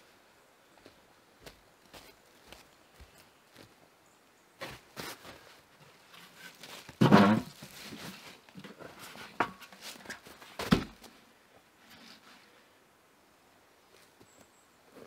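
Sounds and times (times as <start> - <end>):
light footsteps: 0.8 - 3.8
knocks and scrapes: 6.1 - 11.0.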